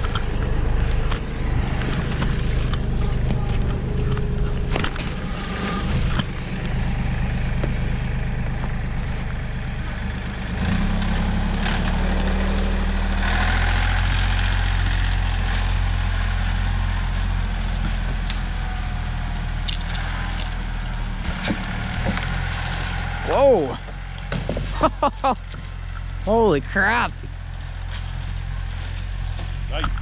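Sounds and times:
tractor diesel engine running: 0:00.0 - 0:30.0.

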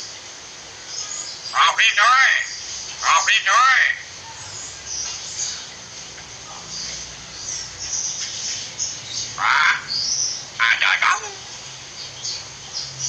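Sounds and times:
harsh bird call: 0:00.8 - 0:04.8, 0:09.2 - 0:11.7
myna chirping: 0:00.8 - 0:13.0.

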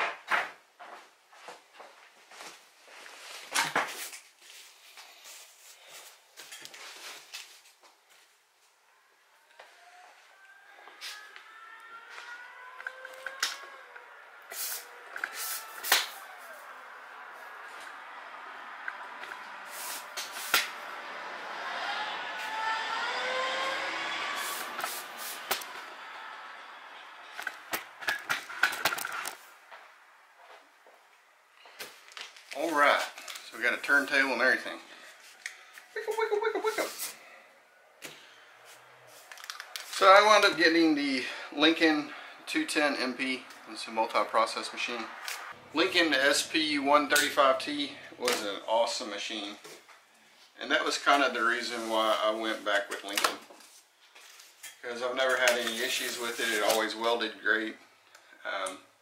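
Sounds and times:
cardboard box scraping squeal: 0:09.7 - 0:16.7, 0:21.7 - 0:26.3.

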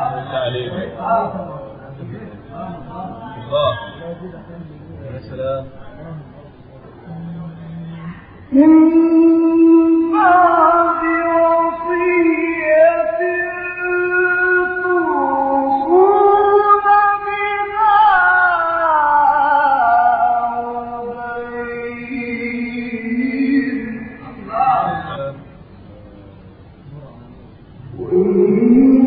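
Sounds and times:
man reciting melodically: 0:08.6 - 0:25.8.

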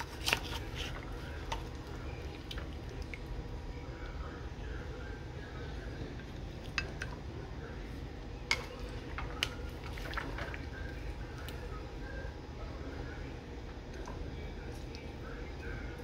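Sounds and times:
food squishing: 0:00.0 - 0:04.2, 0:05.8 - 0:11.9.

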